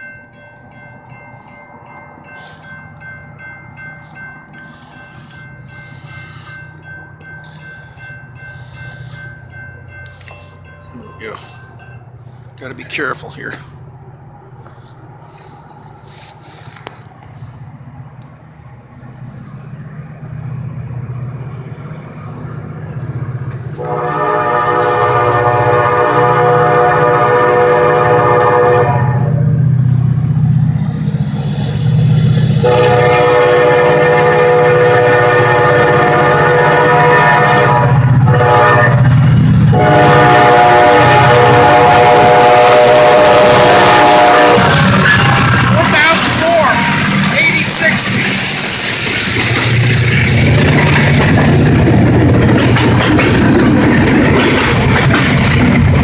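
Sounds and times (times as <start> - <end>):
diesel locomotive engine rumble: 0.0 - 56.0
train horn blasts: 23.8 - 29.4, 32.6 - 45.5.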